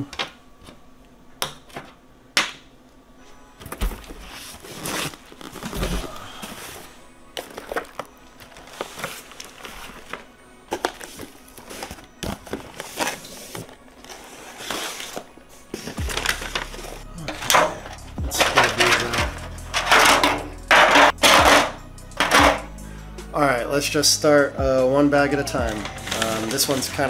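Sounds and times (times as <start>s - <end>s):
soft background music: 0.0s - 27.0s
packages clattering and rustling: 3.6s - 22.7s, 25.7s - 27.0s.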